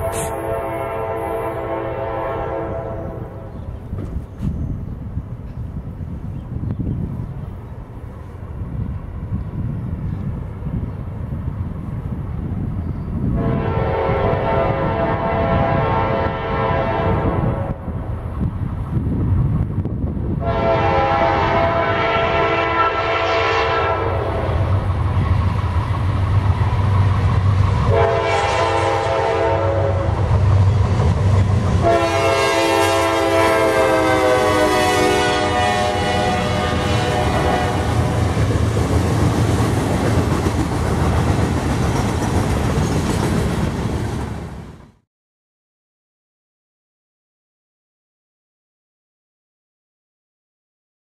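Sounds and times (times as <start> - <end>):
locomotive horn blasts: 0.0 - 3.5, 13.3 - 17.8, 20.4 - 24.6, 27.9 - 30.2, 31.8 - 38.3
freight train rumbling by: 0.0 - 45.0.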